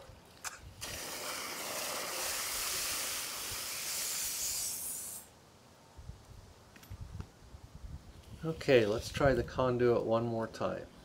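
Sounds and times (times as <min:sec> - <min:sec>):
hose water spray hissing: 0:00.8 - 0:05.3.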